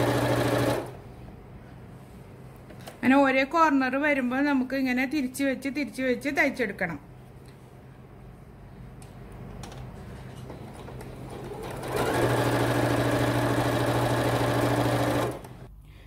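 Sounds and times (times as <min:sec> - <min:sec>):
electric sewing machine stitching: 0:00.0 - 0:01.0, 0:11.3 - 0:15.7.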